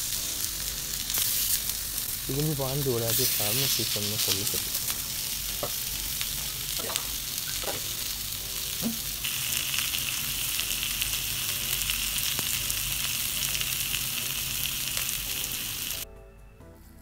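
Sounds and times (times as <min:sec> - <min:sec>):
fish sizzling in oil: 0:00.0 - 0:16.0
oil popping: 0:06.7 - 0:08.2, 0:08.8 - 0:09.4.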